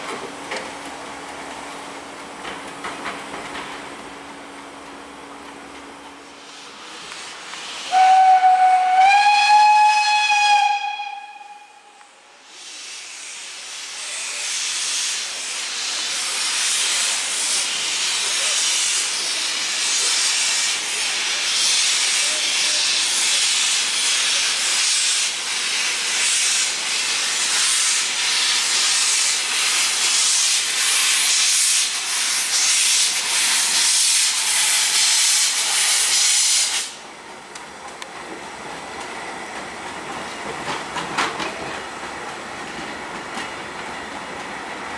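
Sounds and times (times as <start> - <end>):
steam hissing: 6.2 - 10.8, 12.2 - 37.1
steam locomotive whistle: 7.9 - 12.1.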